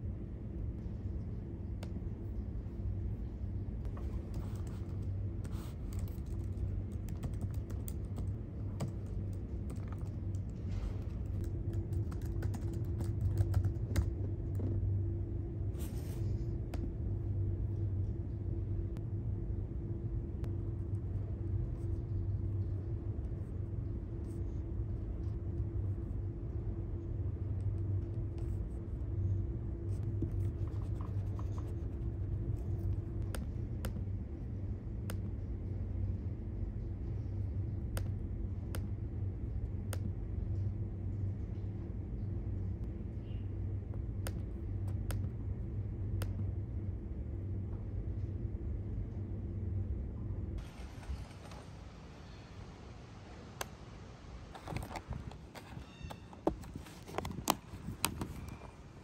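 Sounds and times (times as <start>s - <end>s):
steady low hum: 0.0s - 59.0s
laptop keyboard typing: 4.0s - 10.6s, 11.3s - 14.8s.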